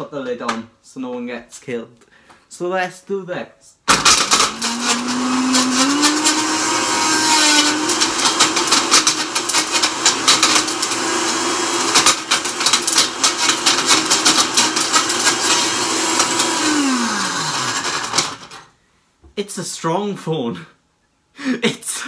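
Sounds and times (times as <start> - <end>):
blender motor running: 3.9 - 18.6.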